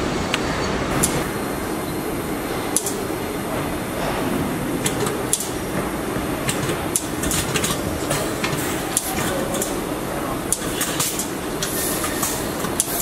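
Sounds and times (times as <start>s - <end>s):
industrial machinery din: 0.0s - 13.0s
metallic clicks and clanks: 4.8s - 9.8s, 10.5s - 13.0s.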